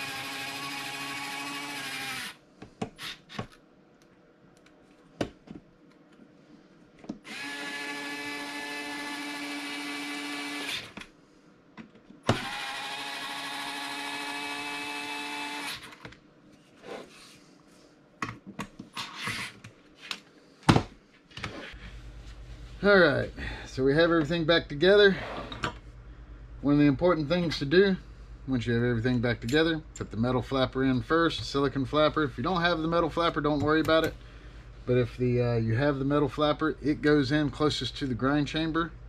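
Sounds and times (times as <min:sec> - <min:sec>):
electric screwdriver whining: 0:00.0 - 0:02.4, 0:07.2 - 0:11.0, 0:12.2 - 0:16.0.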